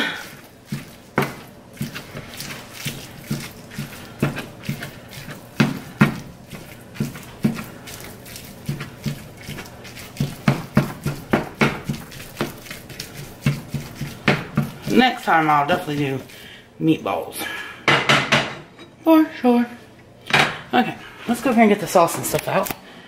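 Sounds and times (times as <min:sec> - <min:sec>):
spatula tapping in frying pan: 0:05.6 - 0:06.3, 0:10.1 - 0:12.6, 0:13.4 - 0:14.8.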